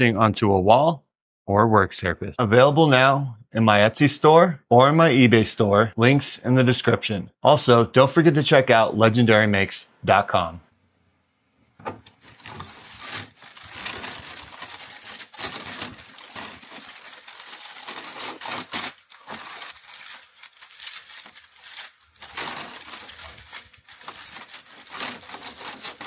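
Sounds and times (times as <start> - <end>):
paper wrap crackling and rustling: 12.0 - 26.0.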